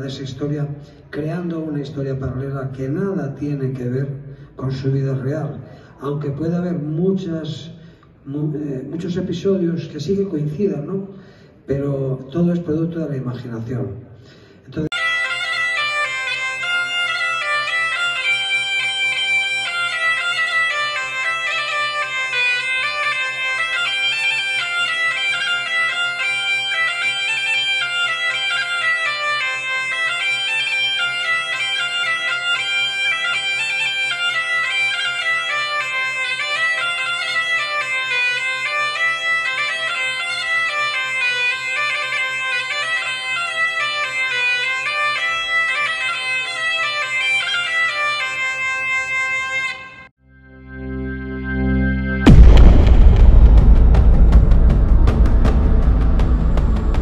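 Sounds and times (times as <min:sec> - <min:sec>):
bagpipe melody with drone: 0:14.9 - 0:52.5, 0:54.8 - 0:57.0.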